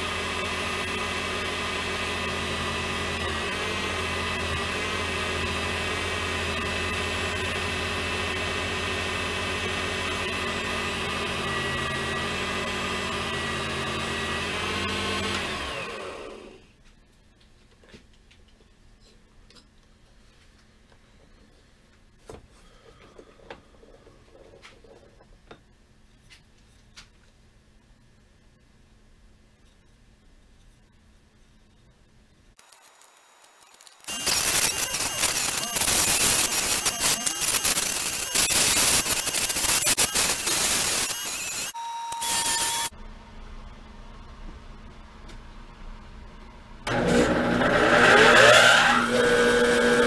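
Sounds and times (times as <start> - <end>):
high whine: 32.6 - 43.2
wood lathe sanding hiss: 32.9 - 42.9.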